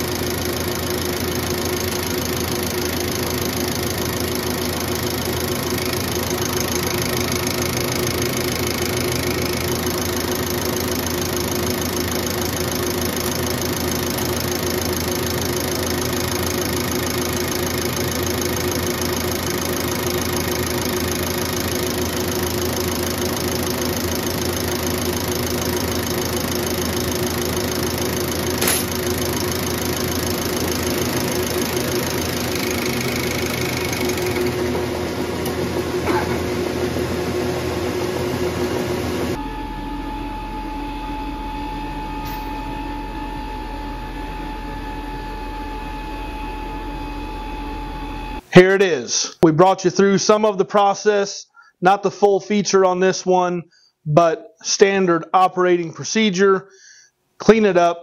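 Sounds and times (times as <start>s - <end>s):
injection pump clattering: 0.0s - 34.6s
steady motor hum: 0.0s - 48.4s
sharp click: 28.6s - 29.0s.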